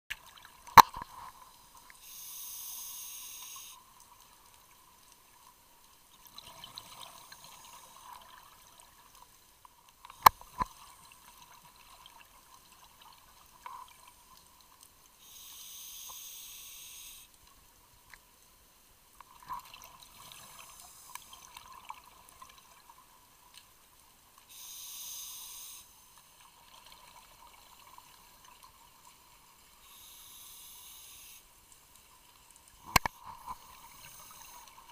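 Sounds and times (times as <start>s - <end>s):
regulator hissing inhalations: 2.0s - 3.8s, 15.2s - 17.3s, 24.5s - 26.0s, 29.8s - 31.5s.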